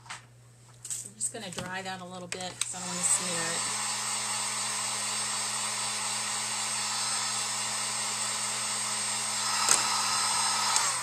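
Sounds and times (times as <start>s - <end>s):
hot-air dryer blowing: 2.6s - 11.0s.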